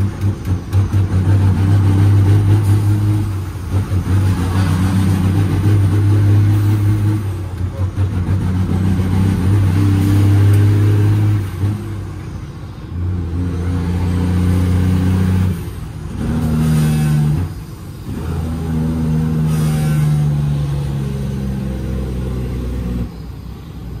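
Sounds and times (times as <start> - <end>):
diesel truck engine shifting gears: 0.0 - 24.0.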